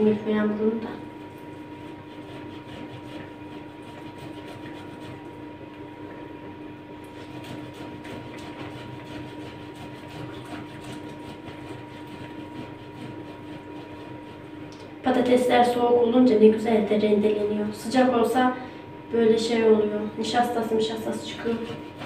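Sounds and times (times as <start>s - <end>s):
steady hum: 0.0s - 22.0s
potatoes grated on hand grater: 1.8s - 5.2s, 7.2s - 14.6s, 20.7s - 22.0s.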